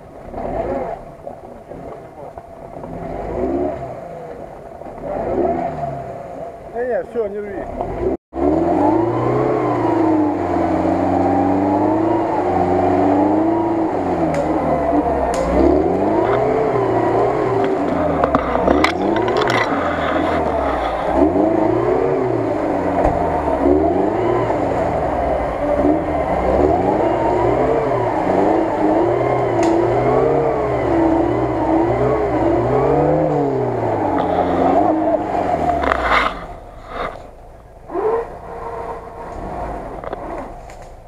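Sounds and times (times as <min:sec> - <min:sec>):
car engine revving: 0:00.0 - 0:41.0.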